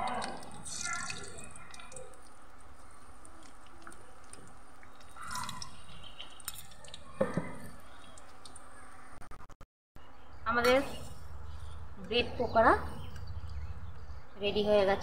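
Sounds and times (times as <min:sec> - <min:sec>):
food deep-frying in hot oil: 0:00.0 - 0:09.3.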